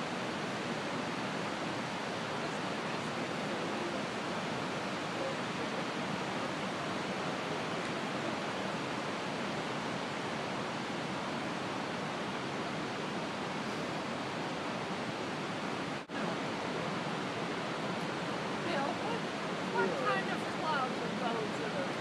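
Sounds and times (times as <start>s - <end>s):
water rushing over spillway: 0.0s - 22.0s.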